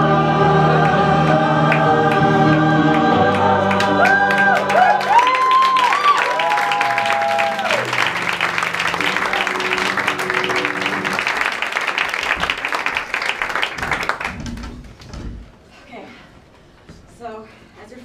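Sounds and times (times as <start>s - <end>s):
audience applauding: 0.8s - 14.7s
held accompaniment notes: 7.0s - 11.9s.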